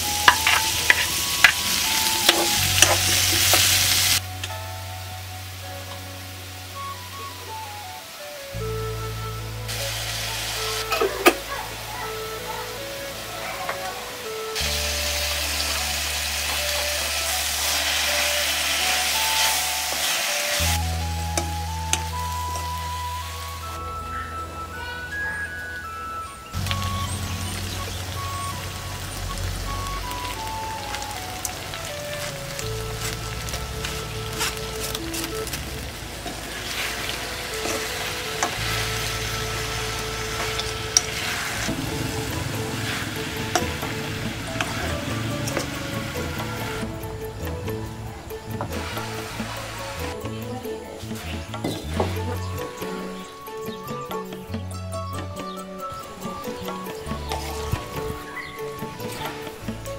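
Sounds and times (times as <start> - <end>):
vegetables sizzling in wok: 0.0 - 25.9, 26.5 - 59.9
background music: 0.0 - 59.9
spatula scraping and tapping pan: 0.2 - 3.7.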